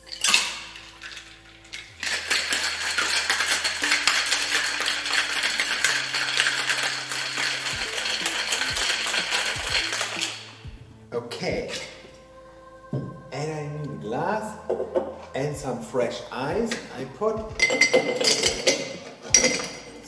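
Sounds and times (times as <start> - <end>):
ice rattling in cocktail shaker: 0.0 - 10.6, 17.6 - 20.0.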